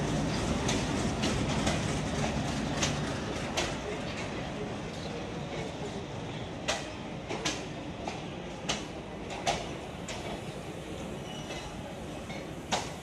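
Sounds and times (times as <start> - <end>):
wheels clacking over rail joints: 0.0 - 4.4
train coaches rumbling past: 0.0 - 13.0.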